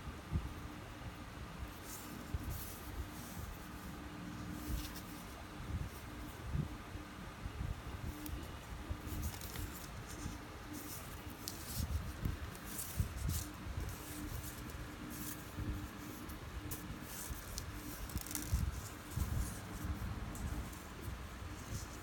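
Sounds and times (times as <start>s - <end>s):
faint hum: 0.0s - 22.0s
fishing line rustling: 8.0s - 22.0s.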